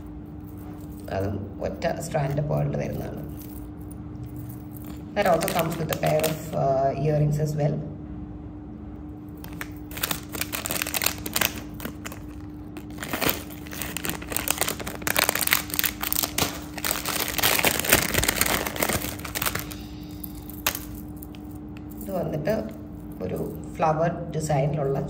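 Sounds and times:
plastic pouches crinkling: 0:04.5 - 0:06.6, 0:09.4 - 0:22.1.

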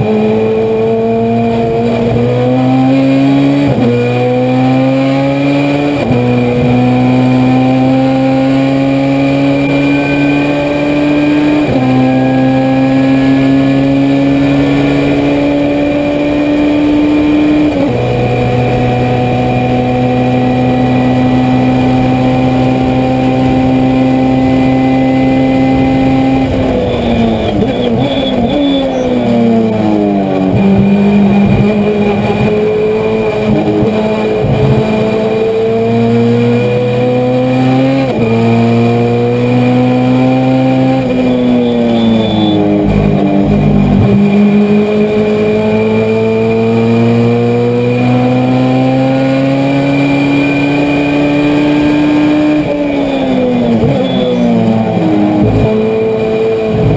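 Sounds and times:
race car engine at full throttle: 0:00.0 - 0:56.9.

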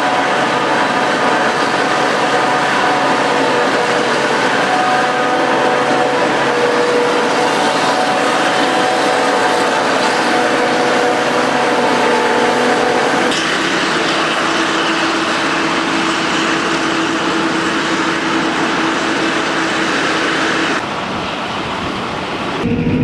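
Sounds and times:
mechanical whine: 0:22.6 - 0:23.0.

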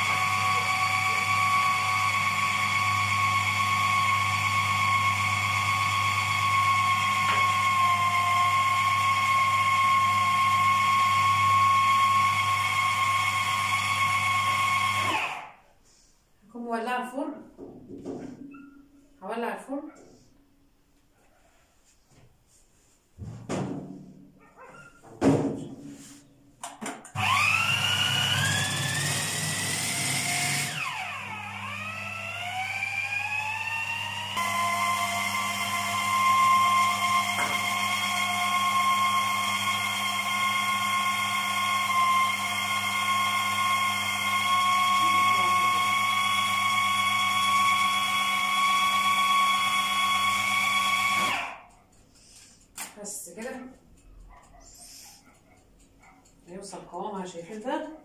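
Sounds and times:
food processor motor whining: 0:00.0 - 0:15.6, 0:27.1 - 0:51.7.

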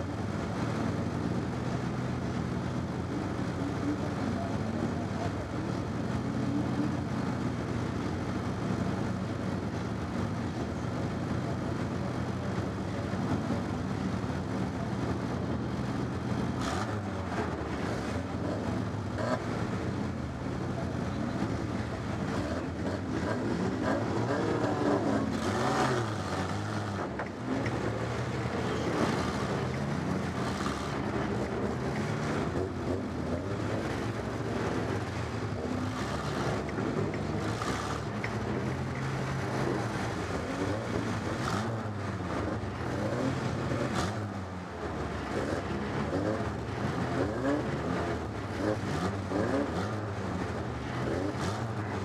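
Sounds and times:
other race car engines: 0:00.0 - 0:52.0
car engine revving: 0:15.8 - 0:52.0.

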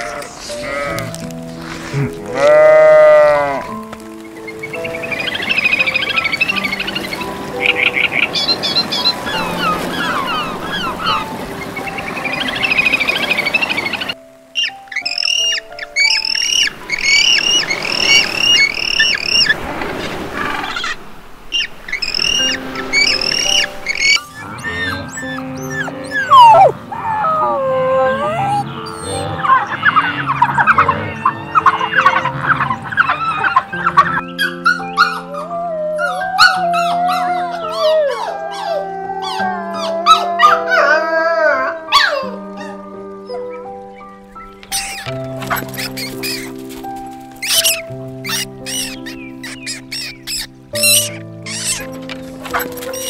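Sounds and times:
background music with held notes: 0:00.0 - 0:20.0, 0:21.5 - 0:53.0
seabirds calling: 0:00.0 - 0:53.0
wolf pup howling: 0:09.3 - 0:11.3, 0:22.0 - 0:43.8, 0:47.4 - 0:53.0.

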